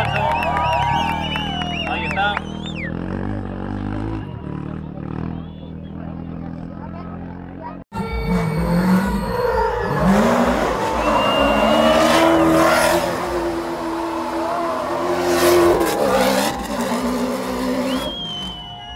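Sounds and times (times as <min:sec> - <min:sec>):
engine revving: 0:00.2 - 0:18.9
tyres squealing on asphalt: 0:07.9 - 0:18.9.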